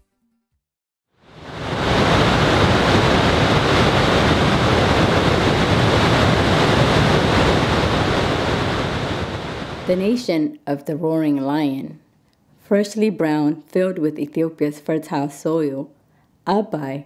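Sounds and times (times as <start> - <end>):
waterfall rushing: 1.3 - 10.0.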